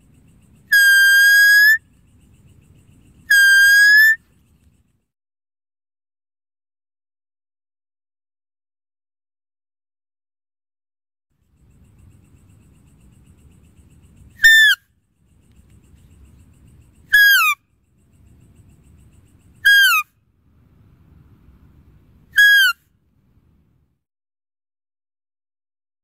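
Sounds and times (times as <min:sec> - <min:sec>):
high falling deer calls: 0:00.7 - 0:01.8, 0:03.3 - 0:04.2, 0:14.4 - 0:14.8.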